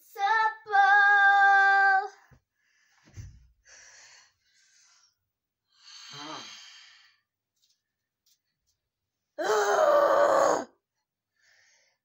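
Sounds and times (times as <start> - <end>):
girl's strained breathy growl: 9.4 - 10.8.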